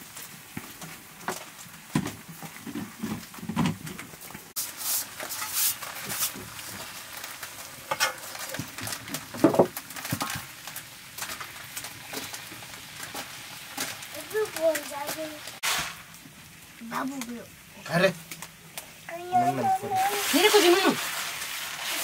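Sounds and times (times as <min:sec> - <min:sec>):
greens sizzling in a wok: 0:00.0 - 0:22.0
metal spatula scraping pan: 0:04.8 - 0:06.4.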